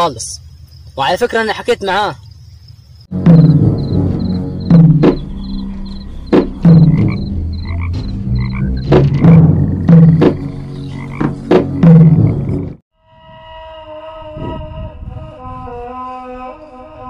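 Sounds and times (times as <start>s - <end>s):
frogs croaking: 0.0s - 12.7s.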